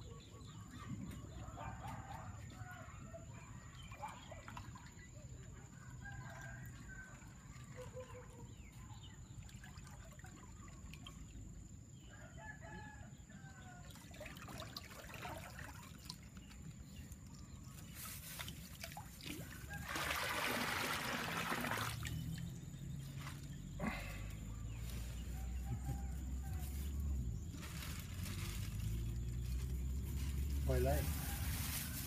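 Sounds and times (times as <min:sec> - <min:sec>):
water splashing into river: 0:13.9 - 0:16.6, 0:18.4 - 0:24.2.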